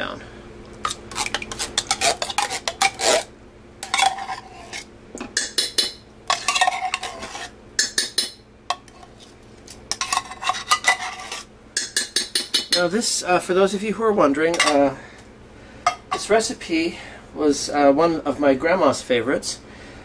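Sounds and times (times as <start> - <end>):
spoon scraping inside metal can: 0.8 - 4.9, 6.3 - 7.6, 8.7 - 11.5.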